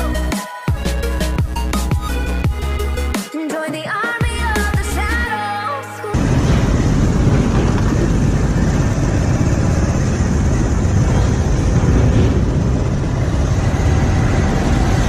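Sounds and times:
motorcycle engine: 6.2s - 15.0s
wind rush on microphone: 6.2s - 15.0s.

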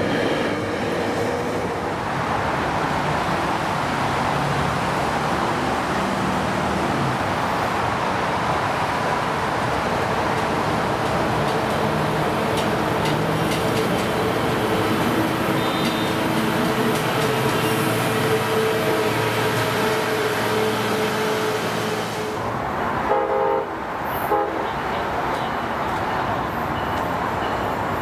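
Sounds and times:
train rumbling on rails: 0.0s - 28.0s
train horn blasts: 15.5s - 16.2s, 23.1s - 25.0s.

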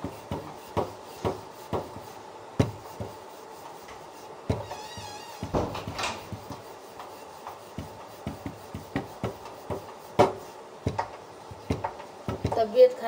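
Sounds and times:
hands kneading dough: 0.0s - 13.0s.

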